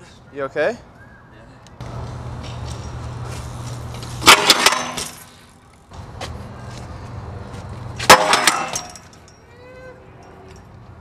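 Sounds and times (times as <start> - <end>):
bike tyres rolling on concrete: 1.8 - 11.0
bike hitting metal handrail: 4.2 - 5.3, 8.0 - 9.3.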